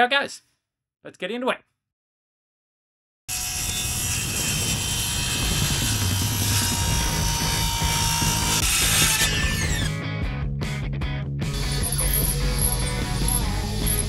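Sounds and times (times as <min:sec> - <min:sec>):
circular saw cutting wood: 0:03.3 - 0:10.0, 0:11.5 - 0:14.0.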